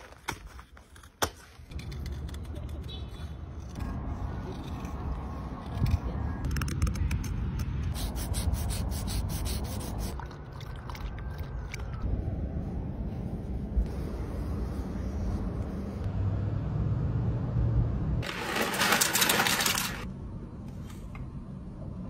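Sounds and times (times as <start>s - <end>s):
sandpaper scraping wood: 7.9s - 10.2s
steady low rumble: 11.8s - 16.1s.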